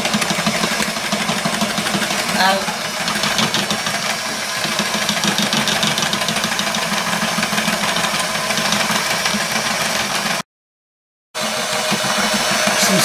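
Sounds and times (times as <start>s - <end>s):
electric hand mixer whisking: 0.0s - 10.4s, 11.4s - 13.0s.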